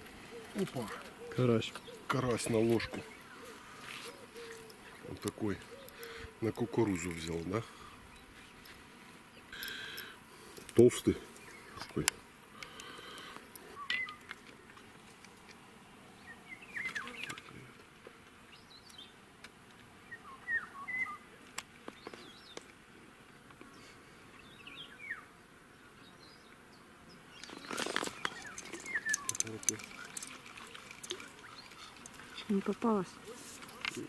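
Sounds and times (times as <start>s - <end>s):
birds chirping: 0.0s - 15.4s, 16.1s - 19.2s, 20.0s - 22.7s, 23.6s - 34.0s
sharp clicks: 27.9s - 30.4s.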